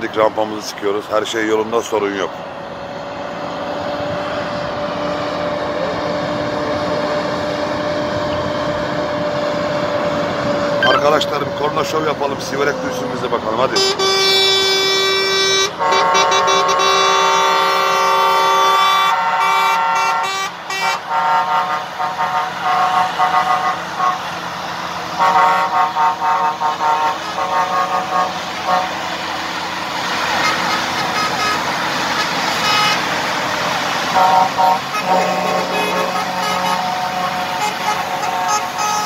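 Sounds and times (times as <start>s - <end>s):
truck engines and tyres passing: 0.0s - 39.0s
truck air horns: 10.7s - 11.3s, 13.6s - 24.4s, 25.1s - 29.2s, 30.2s - 33.2s, 34.1s - 39.0s.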